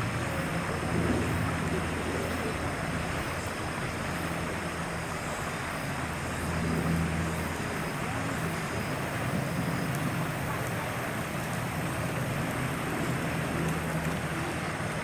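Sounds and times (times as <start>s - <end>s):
low engine drone: 0.0s - 15.0s
outdoor background hiss: 0.0s - 15.0s.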